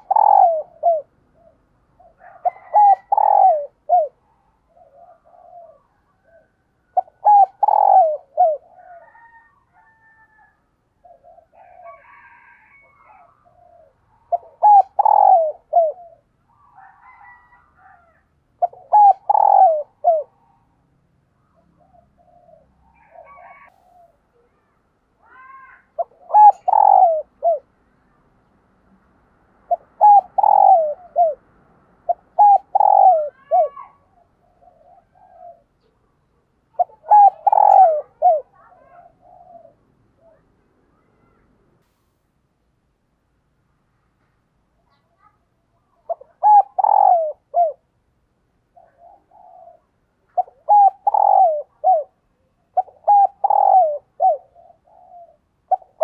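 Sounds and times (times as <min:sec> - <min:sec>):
dove cooing: 0:00.0 - 0:24.6, 0:25.2 - 0:27.7, 0:29.6 - 0:31.4, 0:32.0 - 0:41.4, 0:44.8 - 0:48.0, 0:48.6 - 0:56.0
faint bird chirps: 0:00.0 - 0:28.6, 0:32.1 - 0:41.8, 0:44.2 - 0:47.8.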